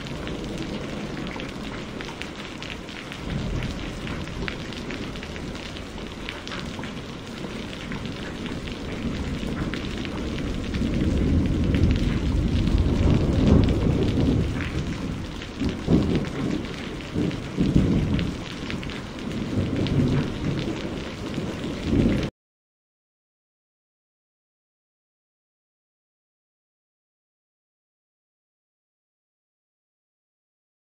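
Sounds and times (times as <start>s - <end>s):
heavy rain: 0.0s - 22.3s
thunder rolling: 0.0s - 22.3s.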